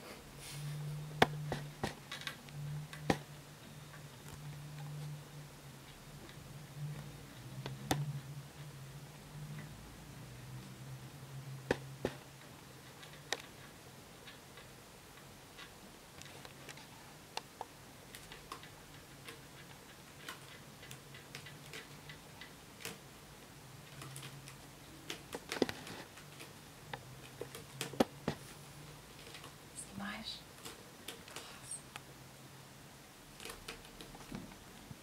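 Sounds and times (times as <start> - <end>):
faint low hum: 0.0 - 35.0
kitten claws clicking on sisal: 17.4 - 23.1, 30.5 - 32.0, 33.4 - 34.4.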